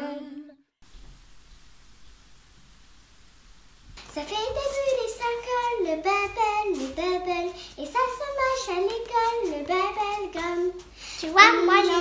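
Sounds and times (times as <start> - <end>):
girl singing unaccompanied: 0.0 - 0.6, 4.0 - 12.0.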